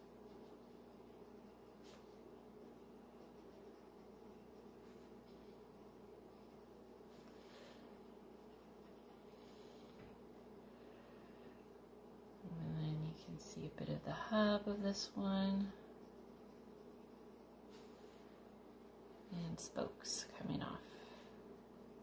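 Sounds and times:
colored pencil scratching on paper: 0.0 - 9.8, 15.6 - 18.1, 21.4 - 22.0
steady low hum: 0.0 - 22.0.

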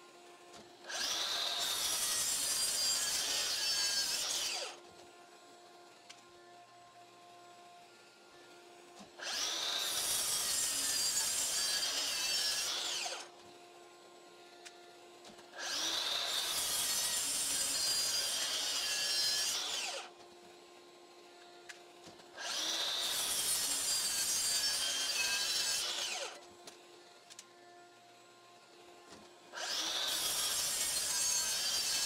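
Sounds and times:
miter saw cutting: 0.8 - 4.8, 9.1 - 13.3, 13.9 - 20.2, 21.0 - 26.5, 29.5 - 32.0.

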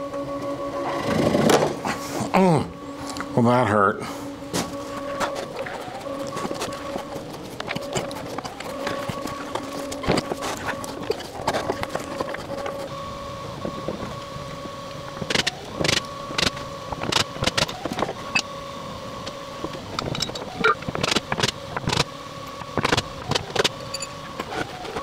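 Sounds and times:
cordless drill whining: 4.0 - 22.1.

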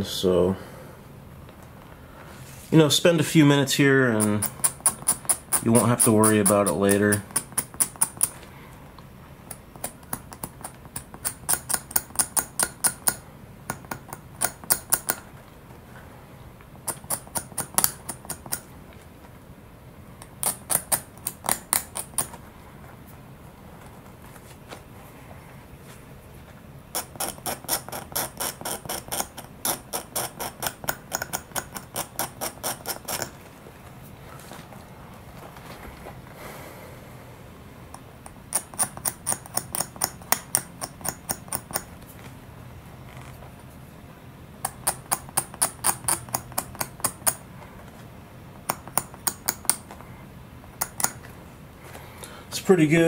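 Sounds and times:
knife blade scraping plastic: 4.2 - 8.4, 27.0 - 33.4.

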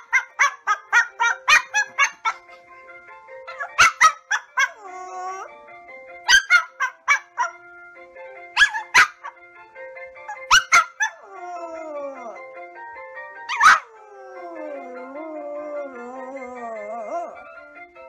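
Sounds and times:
dog barking: 0.0 - 2.5, 3.5 - 4.8, 6.3 - 7.6, 8.6 - 9.4, 10.3 - 11.2, 13.5 - 13.9
background music: 0.0 - 18.0
dog howling: 3.5 - 5.5, 10.3 - 12.5, 13.5 - 17.5.

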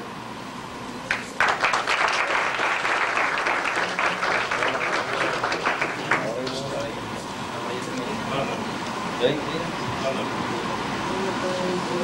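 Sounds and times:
audience applauding: 1.1 - 6.7.

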